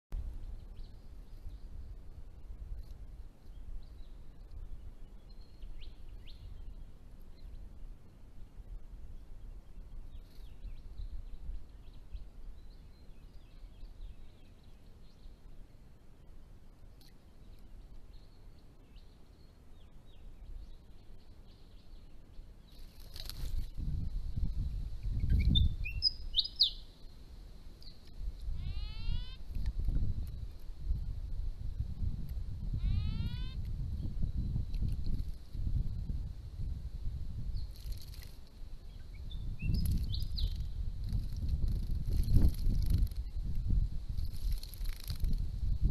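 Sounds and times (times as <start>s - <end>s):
bird calls and chirps: 0.3s - 8.2s, 9.2s - 15.9s, 16.8s - 27.2s, 27.8s - 30.6s, 32.6s - 36.1s, 37.4s - 45.4s
birds chirping and whistling: 25.1s - 26.9s, 28.6s - 29.4s, 32.8s - 34.9s, 38.9s - 43.5s.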